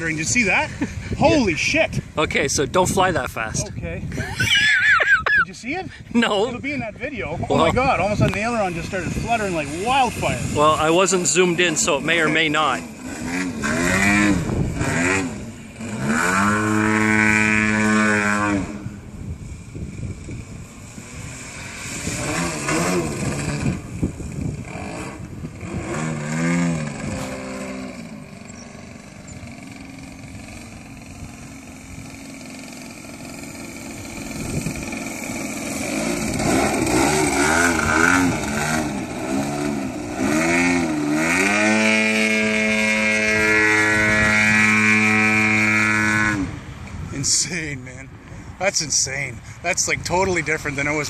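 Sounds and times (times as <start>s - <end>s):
model plane engine droning: 8.1s - 47.0s.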